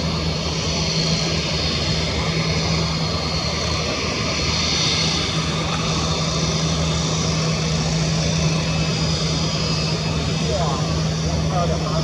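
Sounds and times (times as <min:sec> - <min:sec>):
jet engines taxiing: 0:00.0 - 0:12.0.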